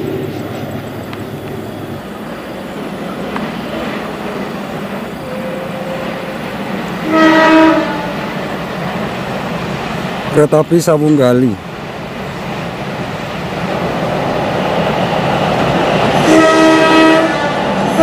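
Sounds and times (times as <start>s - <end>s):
train rumbling on tracks: 0.0s - 18.0s
locomotive horn blast: 5.2s - 8.4s, 16.2s - 18.0s.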